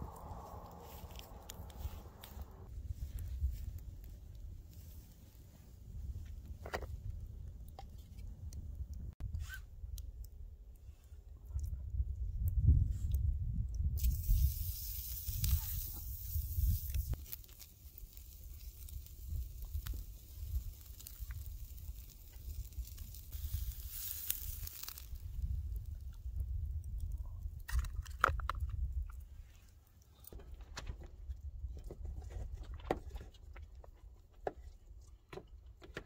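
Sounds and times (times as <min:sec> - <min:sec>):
low rumble: 0:00.0 - 0:04.6
campfire crackling: 0:00.0 - 0:09.2, 0:13.8 - 0:31.6
steak sizzling on a grill: 0:14.0 - 0:25.5.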